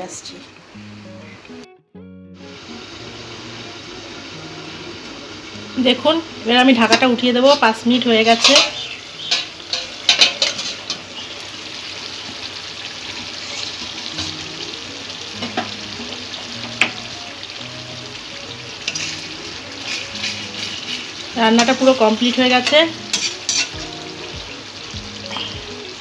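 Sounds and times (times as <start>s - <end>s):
fish bubbling and sizzling: 2.4s - 26.0s
metal lid clinking: 8.3s - 11.0s, 23.1s - 23.8s.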